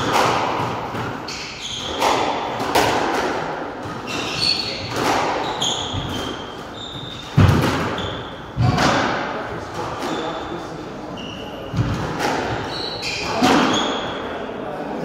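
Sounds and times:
squash racket striking ball: 0.0 - 10.3, 11.8 - 14.0
shoes squeaking on wooden floor: 1.2 - 2.4, 3.8 - 8.5, 11.1 - 14.1
ball smacking walls: 7.4 - 8.0.

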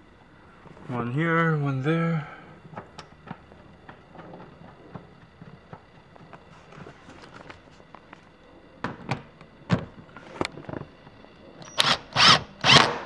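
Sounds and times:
cordless drill running: 11.6 - 13.0.

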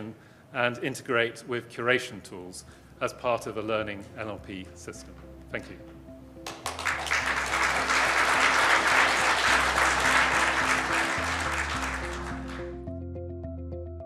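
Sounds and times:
background music: 0.0 - 14.0
audience applauding: 6.4 - 12.9.

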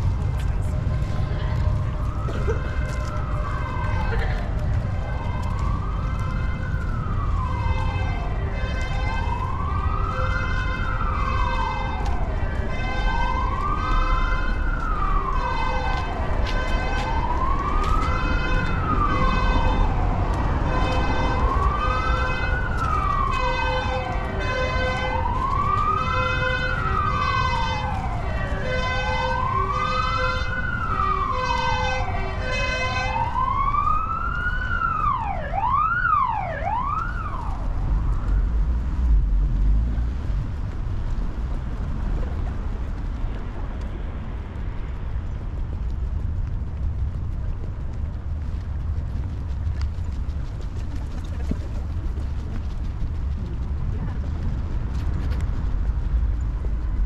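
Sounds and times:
emergency vehicle siren wailing: 0.0 - 57.0.

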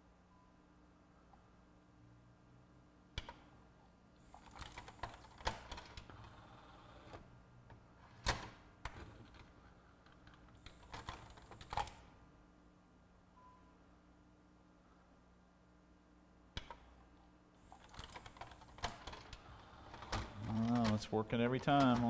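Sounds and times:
clicks and clacks of gears: 20.0 - 22.0.

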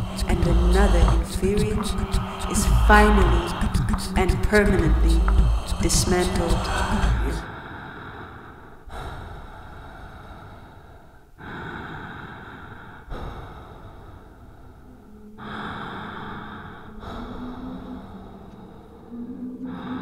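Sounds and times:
low steady tone: 0.0 - 7.4
heavy breathing: 0.0 - 20.0.

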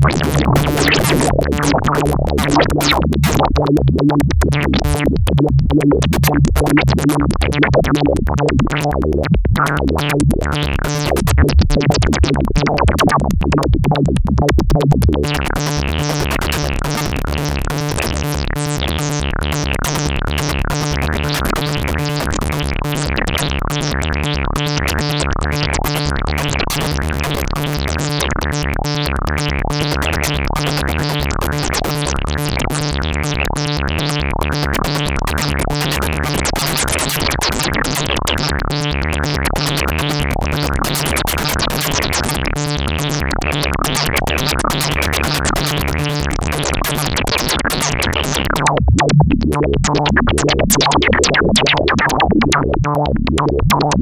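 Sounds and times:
synthesizer loop: 0.0 - 13.7, 39.0 - 54.0.

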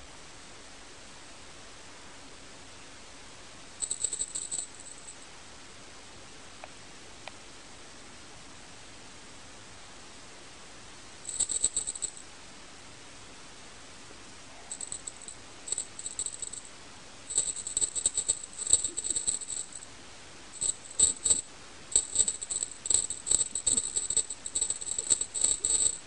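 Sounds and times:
small rattle jingling: 3.8 - 5.2, 11.3 - 12.2, 14.7 - 16.7, 17.3 - 19.9, 20.6 - 26.0.

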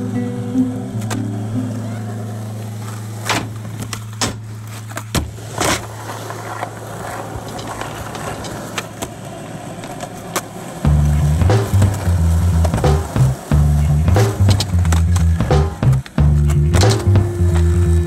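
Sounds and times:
skateboard rolling on concrete: 0.0 - 18.0
skateboard clacks: 0.6 - 18.0.

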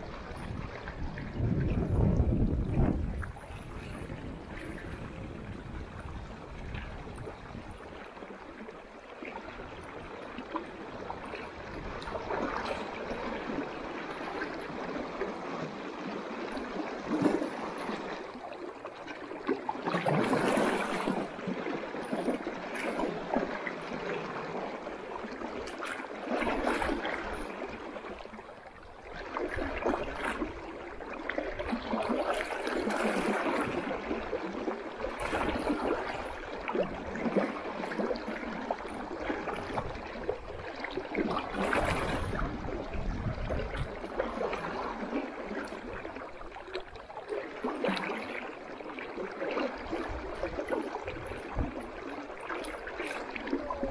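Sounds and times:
river water rushing: 19.4 - 28.2, 47.4 - 53.9.

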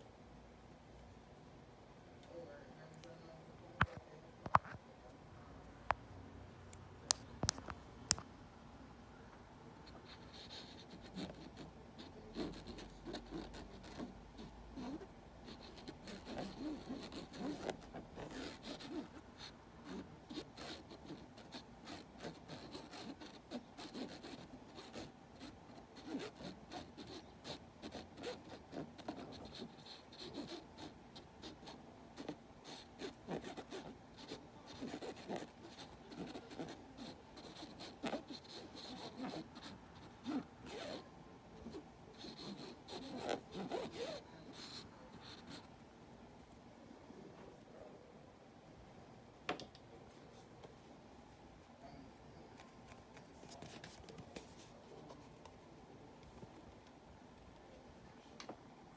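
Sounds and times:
pen scratching on lampshade: 9.9 - 45.7, 52.6 - 55.3.

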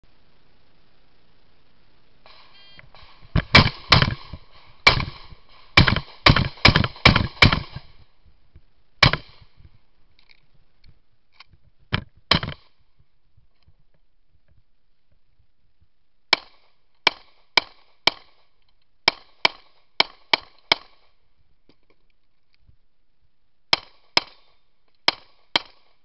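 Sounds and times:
gunshots: 2.3 - 8.0, 9.0 - 9.6, 12.3 - 12.8, 16.3 - 21.2, 23.7 - 26.0
electronic beep: 2.4 - 2.8.

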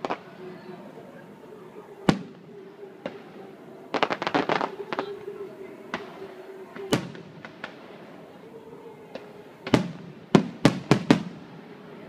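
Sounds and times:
faint fireworks crackling: 0.0 - 12.0
fireworks bangs: 2.0 - 8.2, 9.1 - 11.7.

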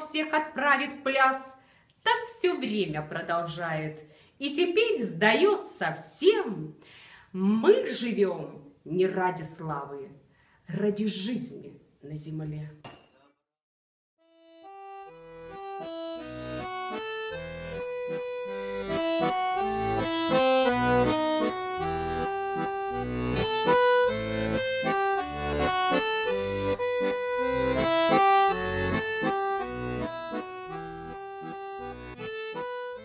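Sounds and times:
button accordion folk tune: 14.2 - 33.0.

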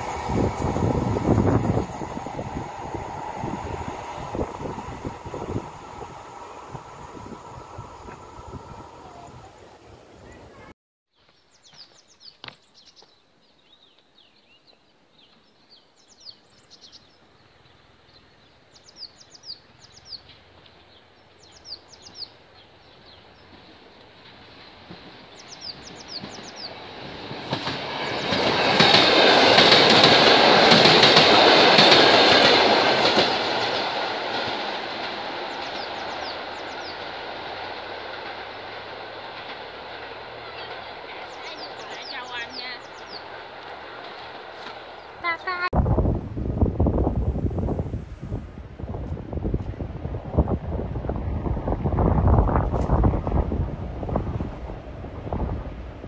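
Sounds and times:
electric train passing: 0.0 - 10.6, 17.8 - 45.7, 46.3 - 56.0
birds chirping: 9.0 - 27.0, 35.4 - 37.1, 40.0 - 44.2.

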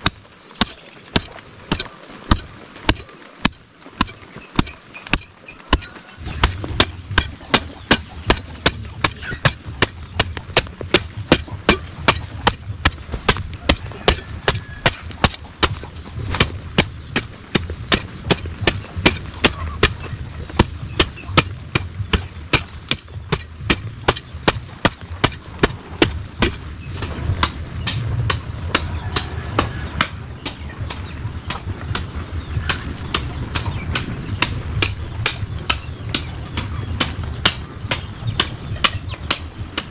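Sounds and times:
hoe striking hard soil: 0.0 - 39.9.

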